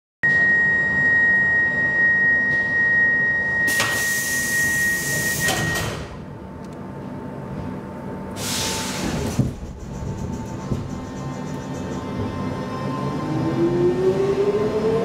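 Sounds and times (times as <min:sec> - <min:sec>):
loud hiss: 0:08.4 - 0:09.2.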